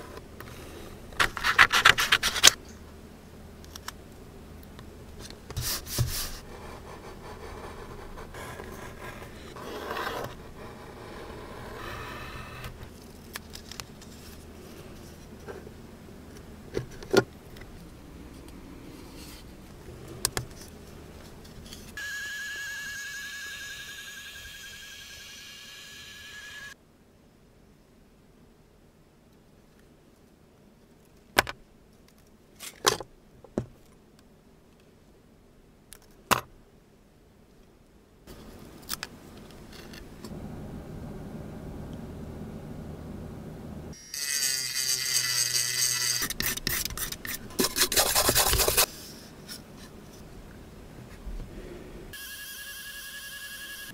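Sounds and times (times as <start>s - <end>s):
pencil scratching on paper: 5.6s - 12.6s, 45.3s - 48.9s
steady high whine: 38.3s - 44.2s.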